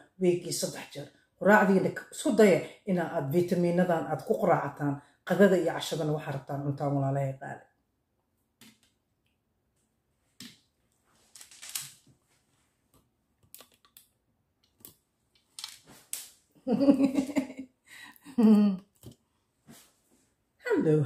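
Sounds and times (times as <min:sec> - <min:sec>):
woman vocal sounds: 0:18.0 - 0:18.8
clothing brushing microphone: 0:19.6 - 0:20.4.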